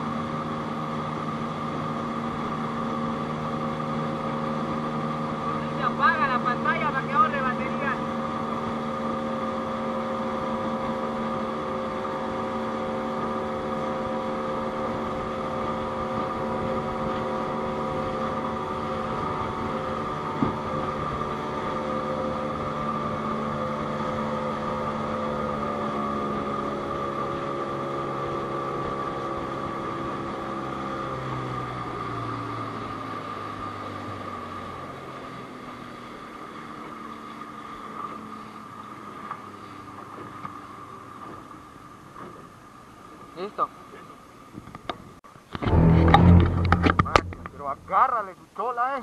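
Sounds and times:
outboard motor running: 0:00.0 - 0:48.2
sharp knock: 0:45.6 - 0:47.9.

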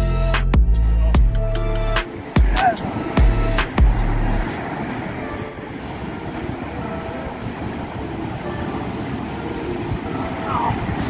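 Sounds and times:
wind: 0:00.0 - 0:11.0
surf at the shore: 0:01.6 - 0:11.0.

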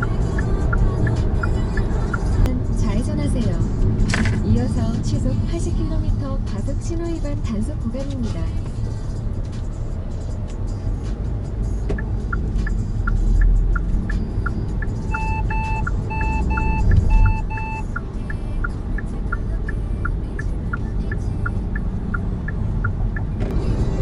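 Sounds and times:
dashboard warning beeps: 0:00.0 - 0:02.5, 0:11.9 - 0:23.5
turn signal ticking: 0:00.0 - 0:23.7
road and engine rumble: 0:00.0 - 0:24.0.

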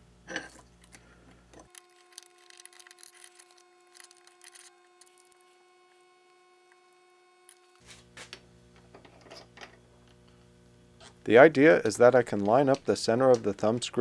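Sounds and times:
steady hum: 0:00.0 - 0:14.0
small metal parts clicking: 0:00.8 - 0:05.5.

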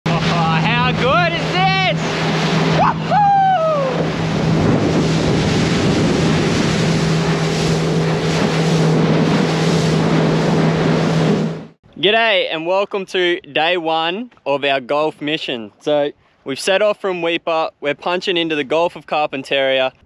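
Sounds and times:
wind buffeting microphone: 0:00.1 - 0:11.7
motorboat engine hum: 0:00.1 - 0:12.0
water rushing: 0:00.1 - 0:12.4.

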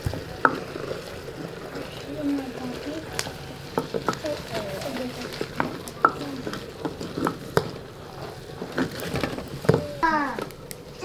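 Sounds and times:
food sizzling: 0:00.0 - 0:11.0
wooden spoon knocking stone pot: 0:03.0 - 0:10.6.

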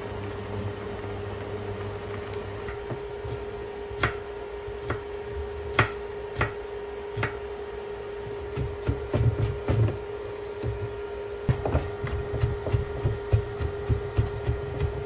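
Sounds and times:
steady hum: 0:00.0 - 0:15.0
knife chopping on wooden board: 0:02.7 - 0:05.1, 0:05.7 - 0:07.4, 0:08.4 - 0:10.0, 0:11.5 - 0:15.0.

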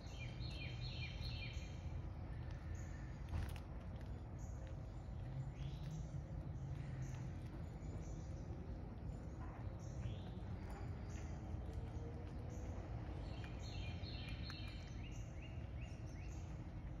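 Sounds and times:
low outdoor rumble: 0:00.0 - 0:17.0
small birds chirping: 0:00.0 - 0:17.0.

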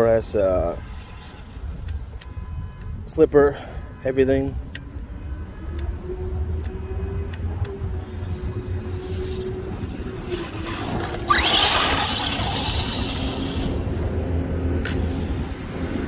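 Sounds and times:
tyre and ground noise: 0:04.4 - 0:16.0
electric motor whining: 0:08.8 - 0:14.0.

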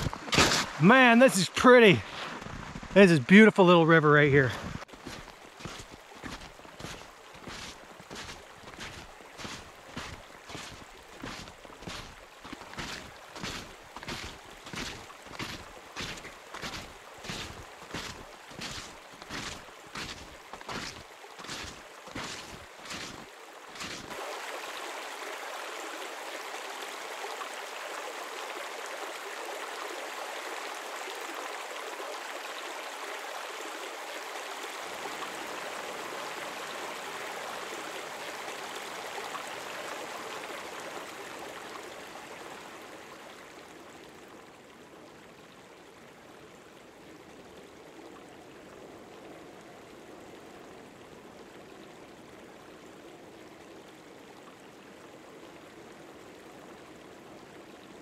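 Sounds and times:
river water rushing: 0:00.0 - 0:02.2, 0:04.8 - 0:44.9.

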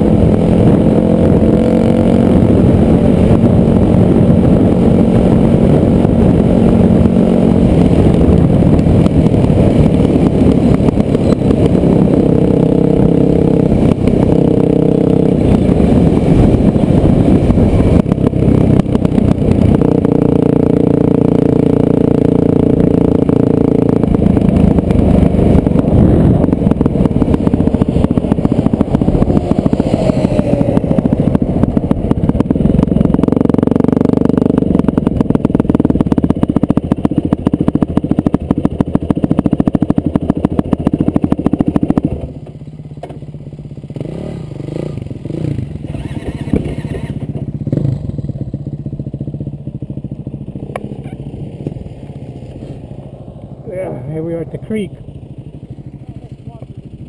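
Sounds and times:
off-road vehicle engine revving: 0:00.0 - 0:36.4, 0:43.9 - 0:48.2.

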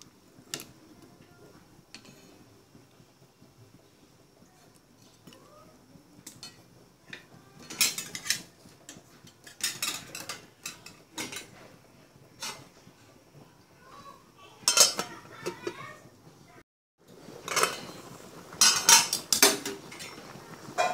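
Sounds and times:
metal cookware clinking: 0:06.2 - 0:06.6, 0:07.6 - 0:11.5, 0:12.4 - 0:12.7, 0:14.6 - 0:15.8, 0:17.4 - 0:18.0, 0:18.6 - 0:20.2.

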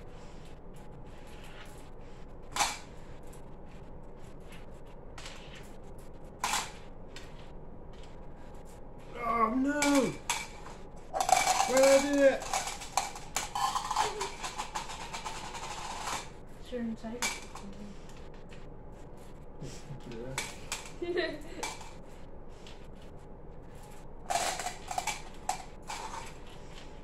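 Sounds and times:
small pieces clicking into plastic cups: 0:09.8 - 0:16.3, 0:24.2 - 0:26.9.

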